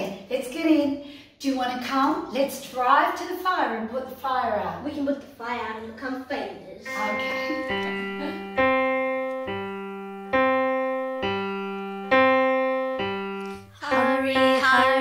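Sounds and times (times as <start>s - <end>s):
keyboard piano chords: 6.9s - 15.0s
wavering melody: 6.9s - 15.0s.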